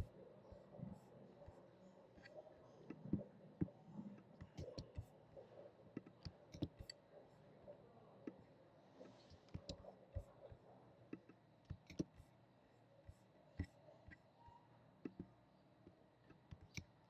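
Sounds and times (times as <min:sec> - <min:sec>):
mouse and keyboard clicks: 0:04.4 - 0:05.1, 0:06.0 - 0:07.0, 0:09.2 - 0:10.3, 0:11.2 - 0:12.2, 0:16.3 - 0:17.0.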